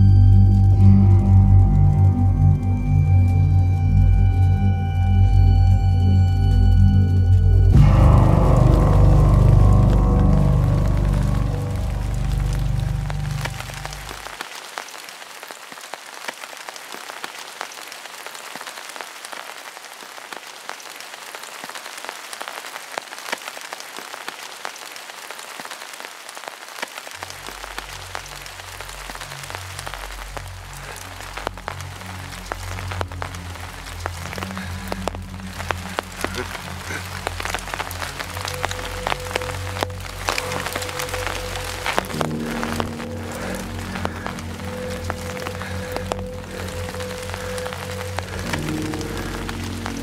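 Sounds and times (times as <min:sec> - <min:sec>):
low hum: 0:00.0 - 0:14.4, 0:31.9 - 0:50.0
rain falling: 0:00.0 - 0:50.0.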